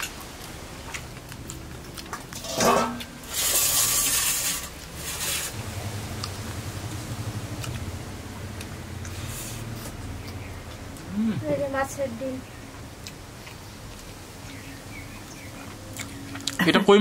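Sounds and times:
low rumble: 5.5 - 11.7.

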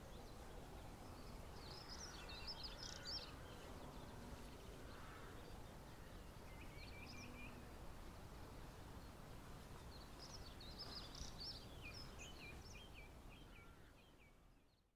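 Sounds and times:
small birds chirping: 9.8 - 14.9.

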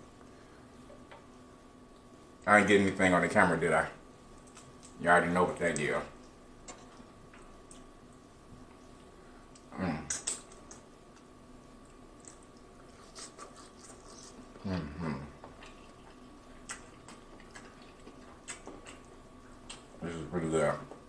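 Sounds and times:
wet lip smacks: 9.5 - 10.8, 16.6 - 19.9
person humming mmm: 9.6 - 10.4, 13.1 - 15.8.

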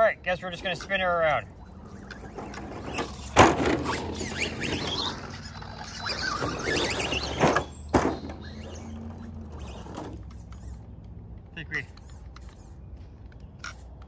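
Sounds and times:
rc car motor whining: 0.4 - 11.1
tyres scrabbling on dirt: 0.4 - 14.0.

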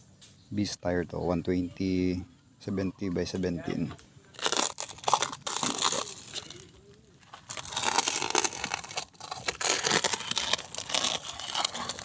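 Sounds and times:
plastic wrap tearing and crinkling: 4.3 - 12.0.

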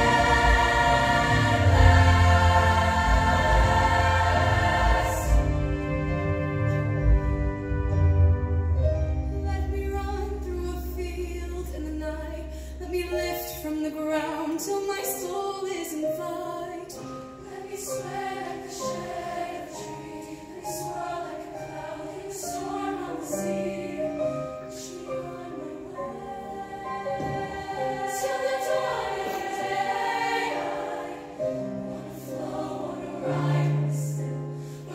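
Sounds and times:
choir singing in harmony: 0.0 - 8.8, 13.1 - 34.9
band accompaniment: 0.0 - 9.3.

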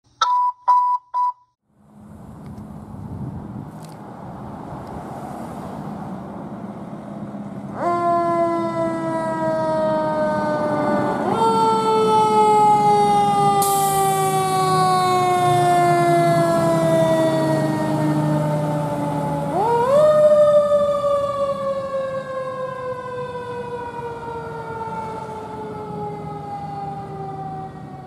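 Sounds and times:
truck engine hum: 1.7 - 11.0
fire engine siren: 6.5 - 28.0.

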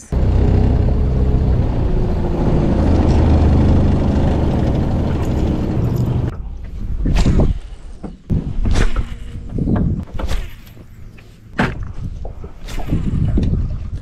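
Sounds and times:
outboard motor running: 0.1 - 6.3.

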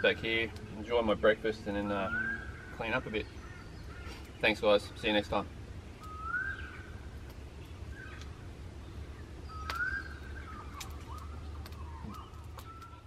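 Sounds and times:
steady low rumble: 0.0 - 13.0
bird whistling calls: 1.9 - 4.4, 6.0 - 7.0, 9.2 - 13.0
sharp clicks: 9.6 - 10.0.

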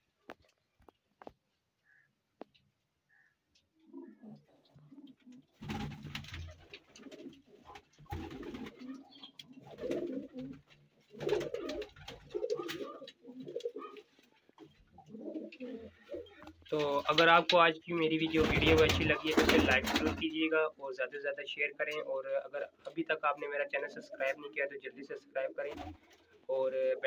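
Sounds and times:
pigeons cooing: 3.1 - 17.4, 18.0 - 20.5.

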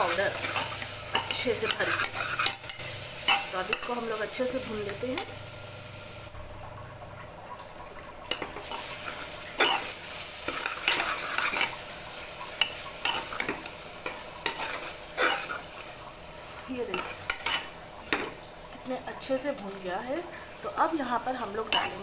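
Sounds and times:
metal ladle scraping pot: 0.0 - 3.9, 8.3 - 11.8, 16.9 - 18.4
onions sizzling in oil: 0.0 - 22.0.

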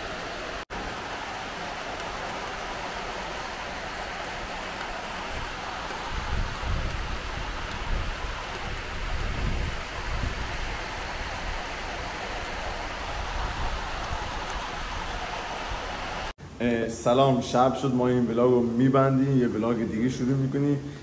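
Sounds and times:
steady rain hiss: 0.0 - 21.0.

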